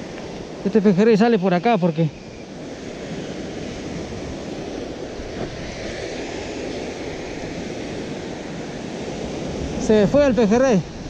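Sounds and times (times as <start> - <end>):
surf breaking over rocks: 2.9 - 11.0.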